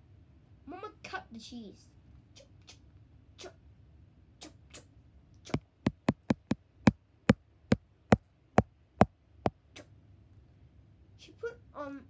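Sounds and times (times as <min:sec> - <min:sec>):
sharp knocks on hard surface: 0:05.9 - 0:06.6.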